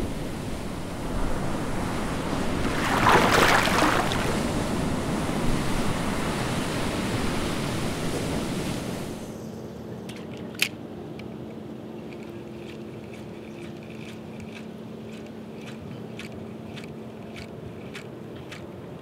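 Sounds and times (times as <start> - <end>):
waves breaking: 0.0 - 9.3
ocean waves washing: 0.0 - 9.4.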